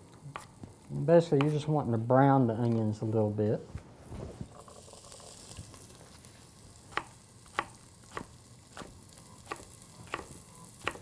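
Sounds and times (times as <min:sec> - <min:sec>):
knife chopping onion on wood: 0:00.3 - 0:00.5, 0:01.4 - 0:01.6, 0:06.9 - 0:11.0
onions sizzling in oil: 0:04.4 - 0:11.0.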